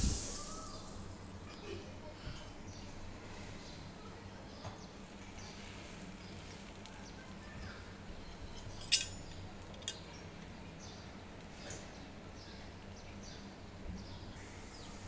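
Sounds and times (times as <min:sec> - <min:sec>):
butter sizzling in a pan: 0:00.0 - 0:01.2.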